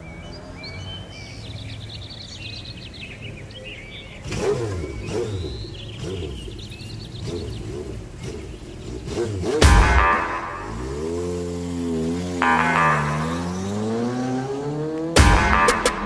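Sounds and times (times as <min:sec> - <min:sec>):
birds chirping: 0:00.0 - 0:16.0
engine revving: 0:04.1 - 0:16.0.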